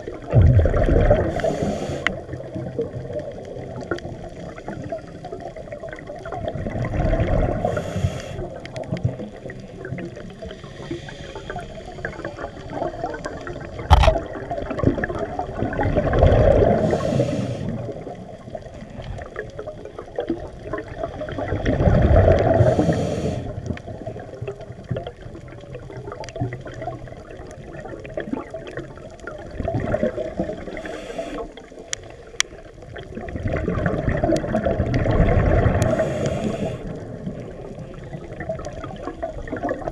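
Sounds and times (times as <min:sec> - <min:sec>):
exhaled bubbles rushing up: 0:00.0 - 0:39.9
scuba regulator breathing hiss: 0:01.3 - 0:02.2, 0:07.6 - 0:08.5, 0:10.4 - 0:12.4, 0:16.7 - 0:17.9, 0:22.5 - 0:23.6, 0:30.6 - 0:31.6, 0:35.9 - 0:37.0.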